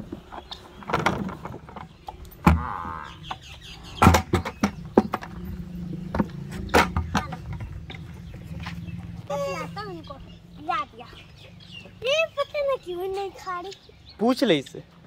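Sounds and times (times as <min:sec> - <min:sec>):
knocks and thuds on wooden trough: 0:00.9 - 0:02.8, 0:04.0 - 0:08.0.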